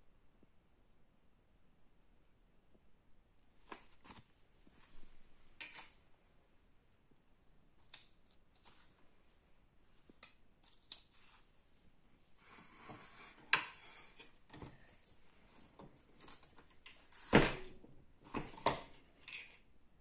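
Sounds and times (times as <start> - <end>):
small parts clicking and rustling: 18.6 - 19.7.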